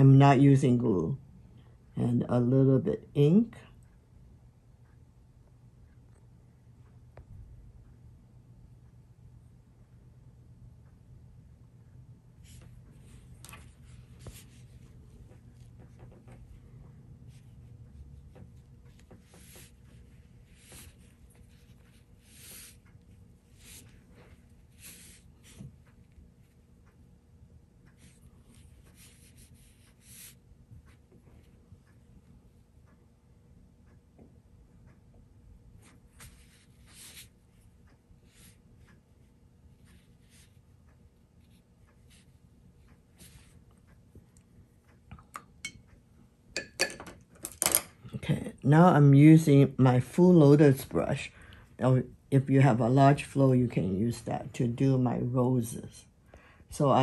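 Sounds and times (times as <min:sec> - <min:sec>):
low room hum: 0:00.0 - 0:57.0
brush scratching on paper: 0:12.4 - 0:16.2, 0:17.3 - 0:26.6, 0:28.0 - 0:31.0, 0:35.8 - 0:37.7, 0:39.7 - 0:40.7
brush hissing on paper: 0:19.3 - 0:22.8, 0:24.7 - 0:25.6, 0:28.9 - 0:30.4.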